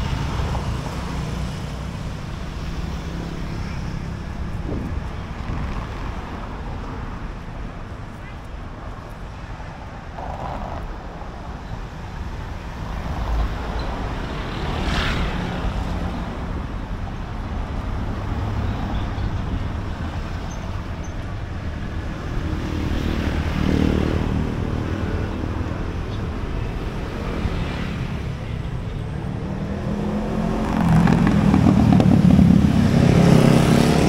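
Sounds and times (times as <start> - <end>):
traffic rumble: 0.0 - 34.0
loud vehicle passing: 22.4 - 34.0.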